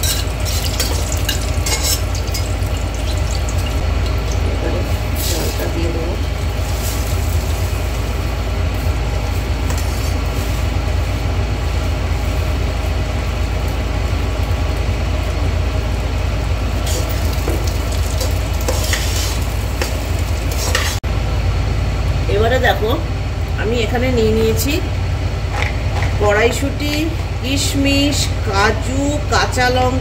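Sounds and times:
rice sizzling in hot ghee: 0.0s - 10.7s, 16.8s - 21.0s
extractor fan humming: 0.0s - 30.0s
spoon scraping through rice: 18.6s - 21.0s.

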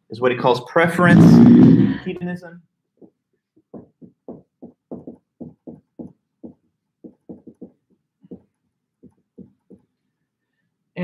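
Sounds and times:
marker writing on whiteboard: 3.0s - 9.9s.

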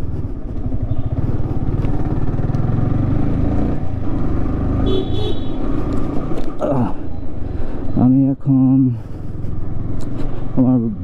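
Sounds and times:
motorcycle engine running: 0.0s - 6.3s.

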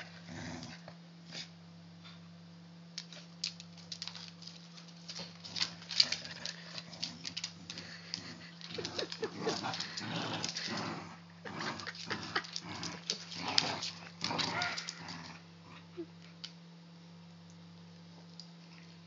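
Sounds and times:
steady low hum: 0.0s - 19.0s
dogs scuffling on wooden floor: 3.0s - 11.1s, 11.7s - 15.3s
dog noises: 11.7s - 15.4s.

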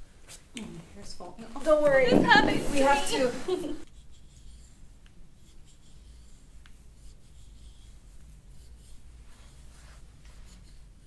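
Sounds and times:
hands rubbing on clothing: 2.5s - 10.9s.

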